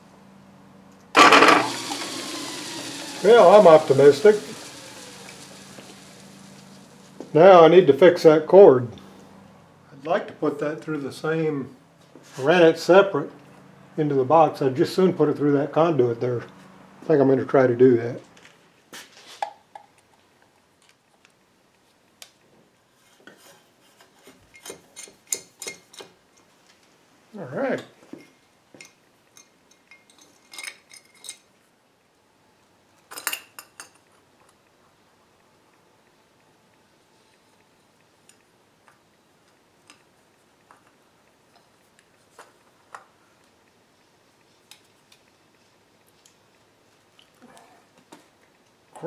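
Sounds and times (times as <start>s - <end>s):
metallic clicks and clinks: 28.2s - 31.6s.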